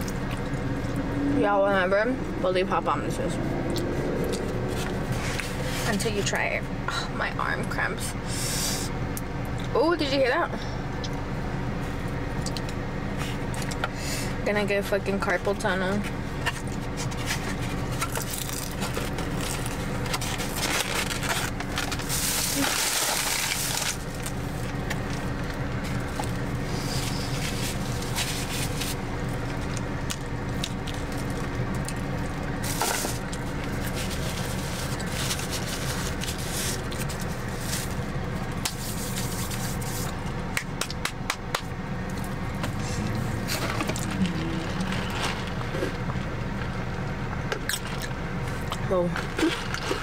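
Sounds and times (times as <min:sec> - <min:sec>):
low hum in car cabin: 0:00.0 - 0:50.0
chewing: 0:03.6 - 0:05.0
foam container crackling: 0:17.1 - 0:25.3, 0:32.6 - 0:40.1.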